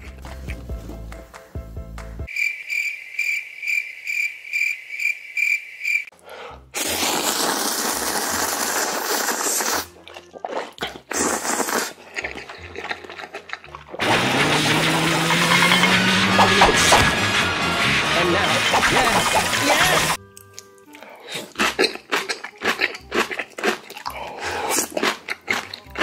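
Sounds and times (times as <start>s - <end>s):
man slurping noodles: 6.3s - 15.5s, 21.0s - 25.7s.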